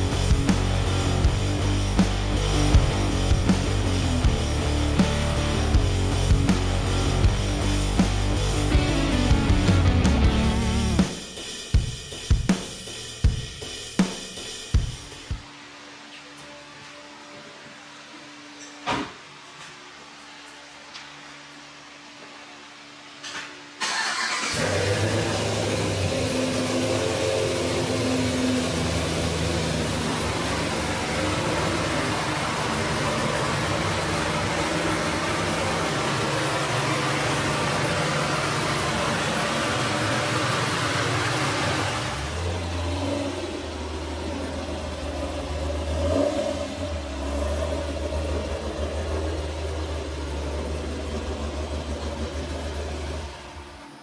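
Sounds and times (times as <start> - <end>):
car engine idling: 0.0 - 11.2, 23.9 - 54.0.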